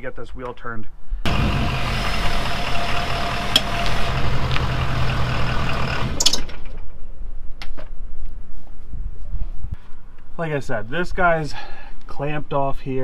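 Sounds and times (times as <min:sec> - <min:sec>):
diesel engine idling: 0:01.3 - 0:06.3.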